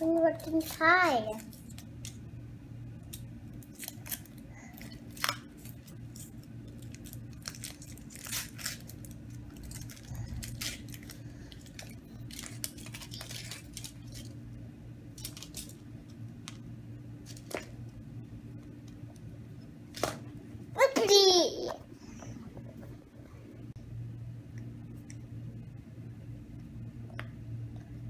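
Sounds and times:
foil wrapper crinkling and tearing: 0:00.0 - 0:02.2, 0:03.6 - 0:14.4, 0:15.1 - 0:15.8.

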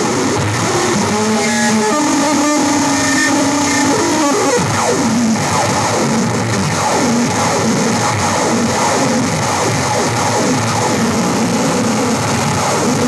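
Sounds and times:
electronic noise music: 0:00.0 - 0:13.0
falling pitch glides: 0:00.3 - 0:08.0.

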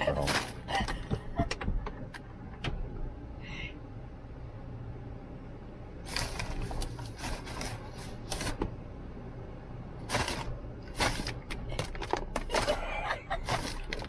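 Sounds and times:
ostrich pecking feed pellets: 0:10.0 - 0:12.8, 0:13.4 - 0:14.0.

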